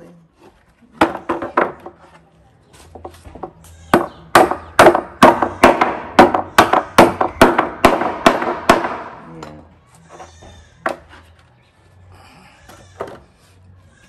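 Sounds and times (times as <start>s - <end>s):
hammer striking nails into wood: 4.0s - 9.2s.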